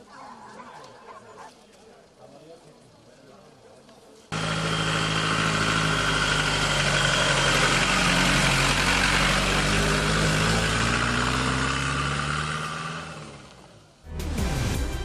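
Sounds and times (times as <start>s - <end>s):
vehicle engine running: 4.3s - 14.0s.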